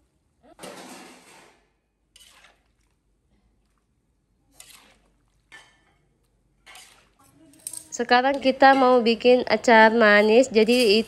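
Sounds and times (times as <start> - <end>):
metal spatula scraping wok: 0.6 - 2.8, 4.5 - 6.0, 6.6 - 7.5.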